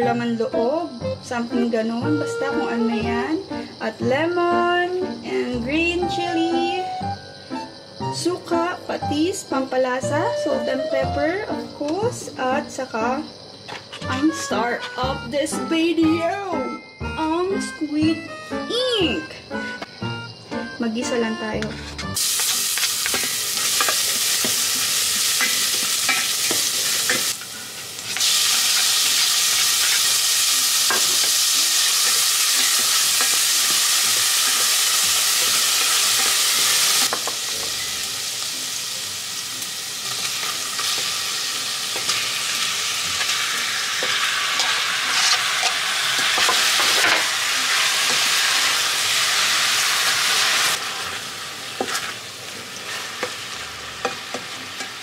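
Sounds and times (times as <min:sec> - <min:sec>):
garlic and onion sizzling in oil: 0:20.3 - 0:55.0.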